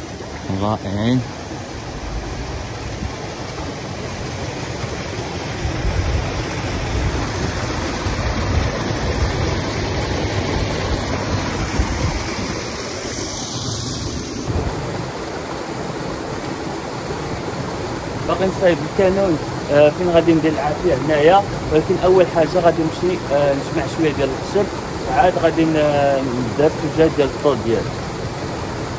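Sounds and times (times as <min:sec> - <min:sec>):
waterfall splashing into pool: 0:00.0 - 0:28.9.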